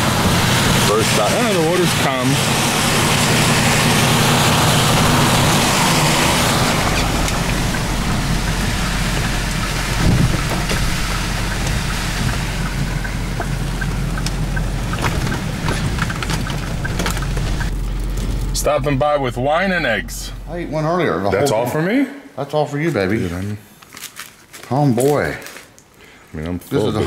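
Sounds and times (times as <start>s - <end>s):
rain and wind hiss: 0.0s - 20.4s
car engine and tyre hum: 0.0s - 21.3s
light ticks: 7.2s - 18.3s.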